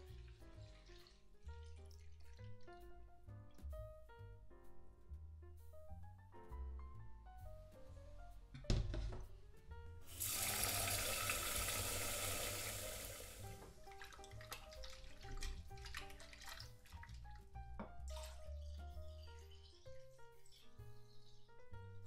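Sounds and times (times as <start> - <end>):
water running from tap: 0.0 - 2.8, 10.1 - 18.5
piano music: 0.0 - 22.0.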